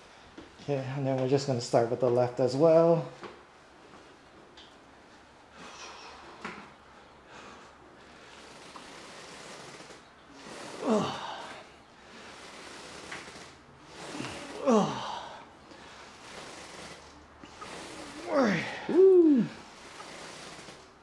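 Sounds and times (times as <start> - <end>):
hard breathing: 5.5 - 20.8
person grunting: 10.8 - 11.6, 14.0 - 15.4, 18.1 - 19.6.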